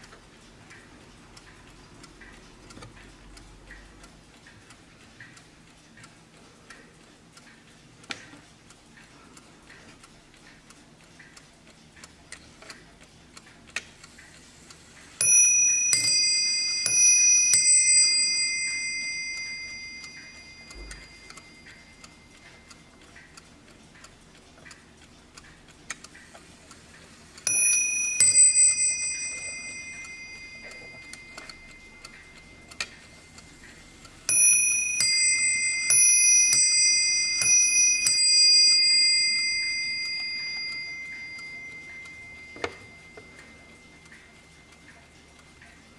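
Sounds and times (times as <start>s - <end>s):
clock ticking: 0.0s - 45.9s
clock bells chiming ding-dong: 15.2s - 22.7s, 27.5s - 45.2s.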